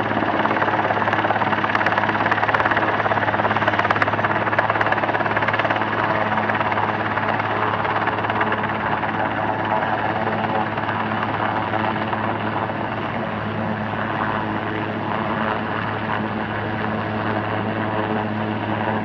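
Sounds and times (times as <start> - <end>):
helicopter rotor beating: 0.0 - 19.0.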